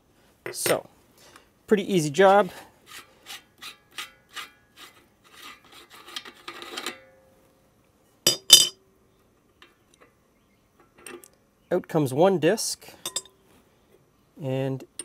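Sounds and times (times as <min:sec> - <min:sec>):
sharp metallic clinks: 0:13.0 - 0:13.4.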